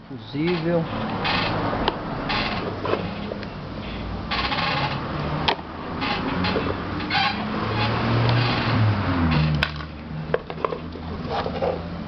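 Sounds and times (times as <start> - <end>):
plastic scraping: 4.3 - 11.9.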